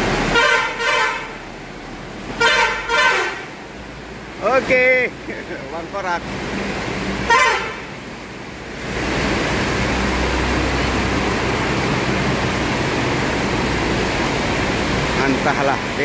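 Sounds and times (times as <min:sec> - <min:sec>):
diesel engine rumbling: 0:00.0 - 0:16.0
rain and wet tyres hiss: 0:00.0 - 0:16.0
short high horn blast: 0:00.3 - 0:01.4, 0:02.4 - 0:03.5, 0:07.3 - 0:07.9.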